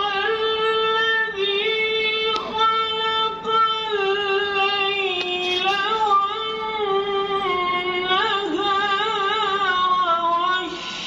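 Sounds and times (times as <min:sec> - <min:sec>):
person chanting a recitation: 0:00.0 - 0:11.0.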